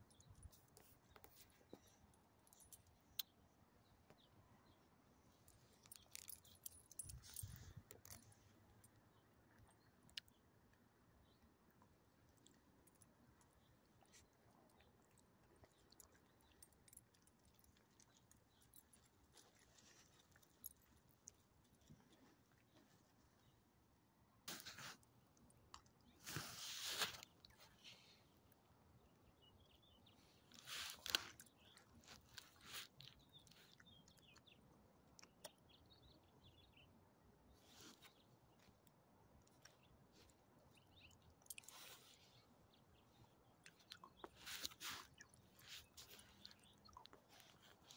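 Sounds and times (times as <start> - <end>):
faint small clicks and ticks: 5.4 - 23.5.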